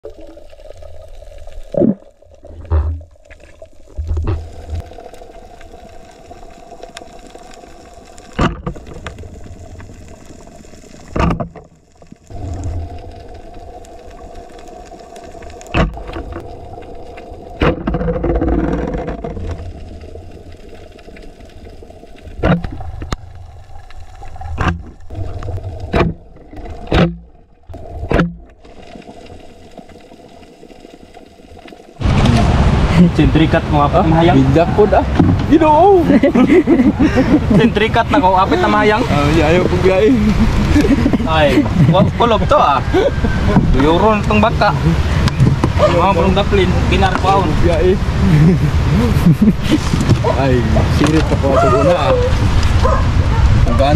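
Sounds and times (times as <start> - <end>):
noisy rush: 32.0 - 53.9.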